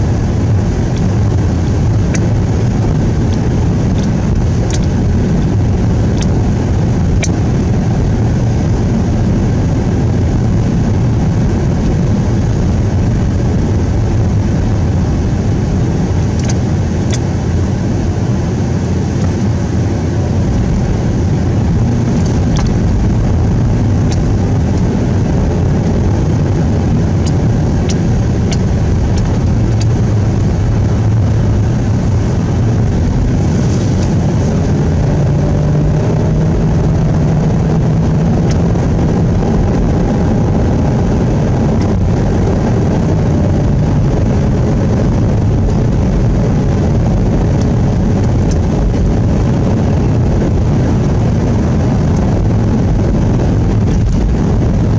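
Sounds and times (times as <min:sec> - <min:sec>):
engine and tyres drone: 0:00.0 - 0:54.9
faint clicks and ticks: 0:03.3 - 0:04.9, 0:16.4 - 0:17.2.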